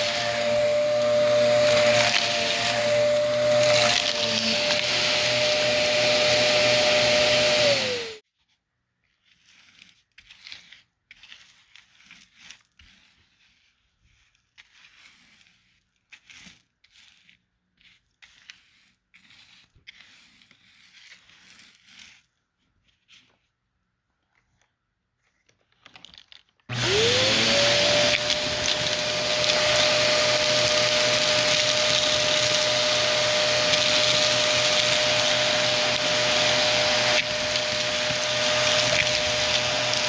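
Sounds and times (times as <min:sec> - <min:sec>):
vacuum cleaner running: 0:00.0 - 0:08.2, 0:26.7 - 0:40.0
rustling and scraping: 0:07.7 - 0:40.0.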